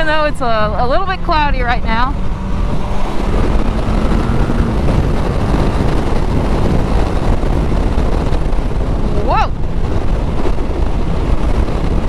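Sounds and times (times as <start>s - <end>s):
motorcycle engine: 0.0s - 12.0s
road noise: 0.0s - 12.0s
wind rush on microphone: 0.0s - 12.0s.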